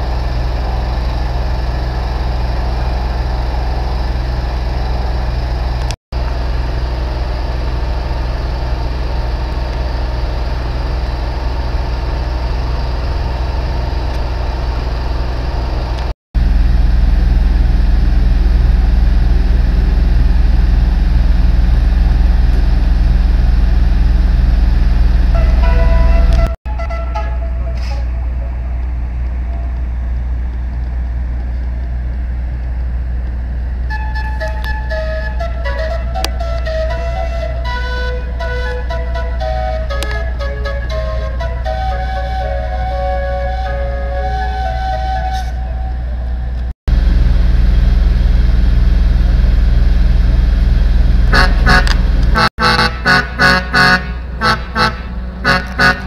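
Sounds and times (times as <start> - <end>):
horns and sirens: 0.0 - 32.7, 33.6 - 47.2, 51.3 - 56.0
steady low rumble: 0.0 - 44.2, 45.5 - 56.0
air horn blasts: 25.2 - 28.8, 36.5 - 46.2, 51.3 - 56.0.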